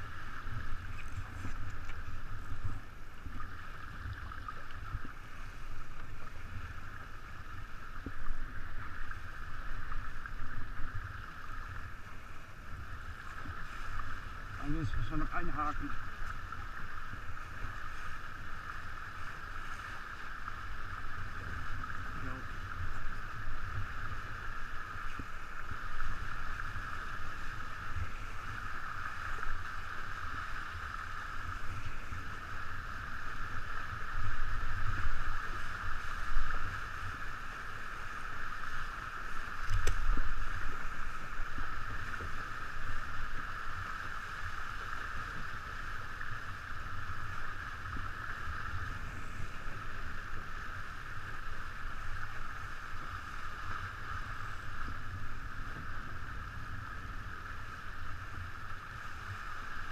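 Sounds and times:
water rushing past a boat: 0.0s - 59.9s.

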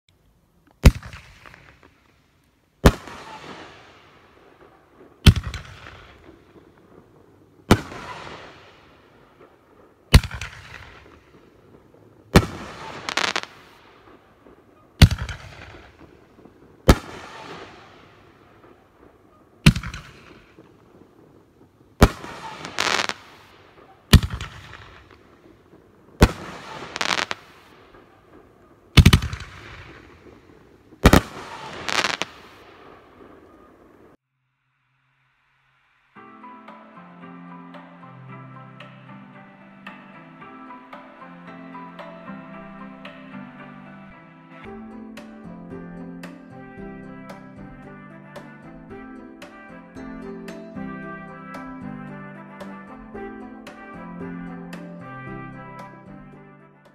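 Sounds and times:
firework bangs with hiss: 0.8s - 34.2s.

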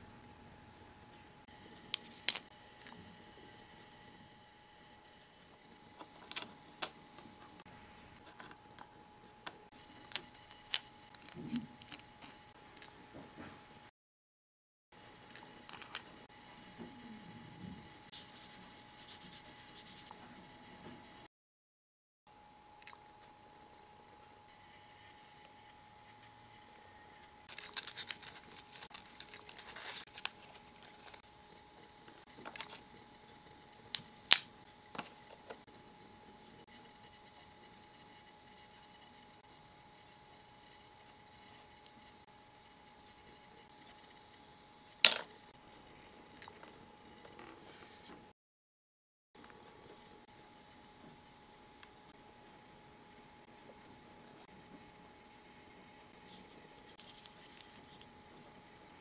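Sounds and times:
paper wrapper rustling: 27.5s - 31.2s.

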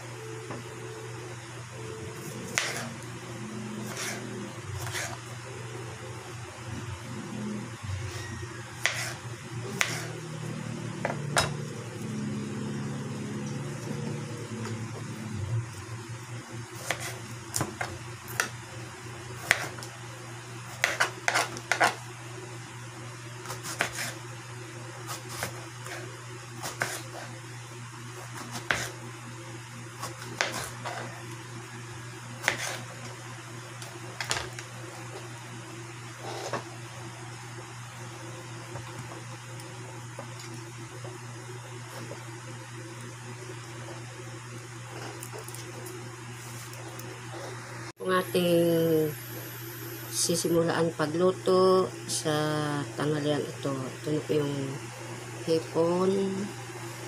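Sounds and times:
steady low hum: 0.0s - 57.0s
knife chopping on plastic board: 2.5s - 2.9s, 8.8s - 9.2s, 9.8s - 10.1s, 19.4s - 19.8s, 20.8s - 22.0s, 26.6s - 27.2s, 28.3s - 28.9s, 32.4s - 32.8s.

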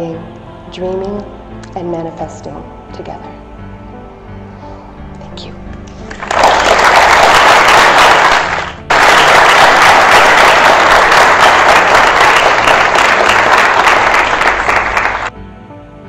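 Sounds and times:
soft background music: 0.0s - 16.0s
audience applauding: 6.1s - 15.3s.

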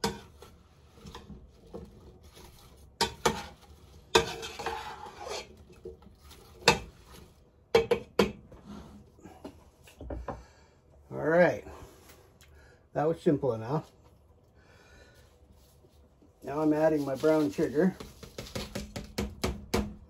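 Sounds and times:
spoon stirring apples in pot: 0.0s - 8.6s, 15.5s - 19.5s
spoon knocking against metal pot: 7.7s - 8.4s.

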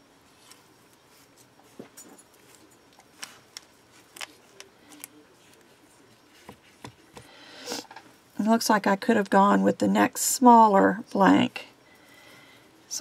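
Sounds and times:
fingers tapping and rustling on paper: 6.4s - 7.3s.

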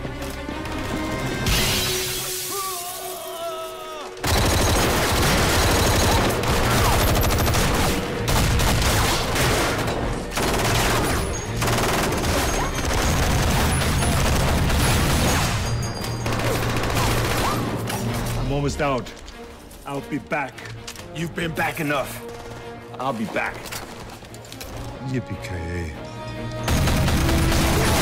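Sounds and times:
rapid automatic gunfire: 4.2s - 15.4s, 16.2s - 17.6s, 26.7s - 28.0s.

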